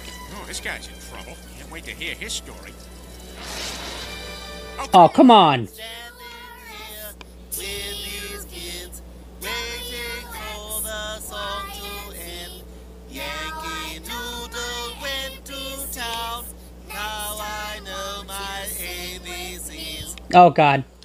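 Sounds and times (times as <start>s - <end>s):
children singing in unison: 5.8s - 20.1s.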